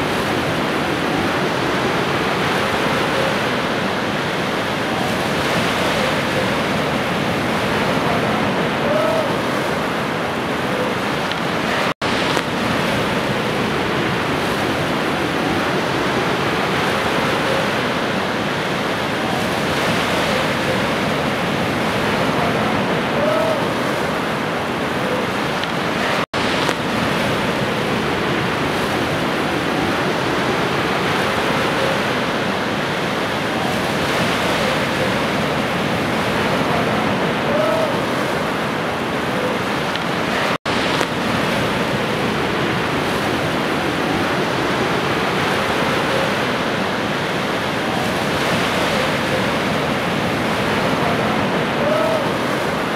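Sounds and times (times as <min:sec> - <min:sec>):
steady rushing noise: 0:00.0 - 0:52.9.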